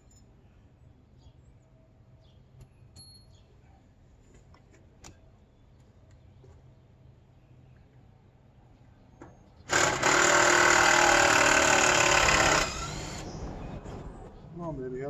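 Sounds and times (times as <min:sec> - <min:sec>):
cordless drill driving a screw: 0:09.7 - 0:13.3.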